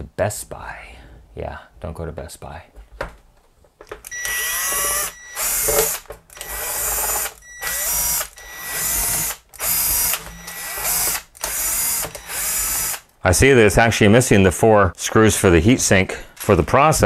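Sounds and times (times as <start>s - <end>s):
cordless power screwdriver running: 4.0s - 13.0s.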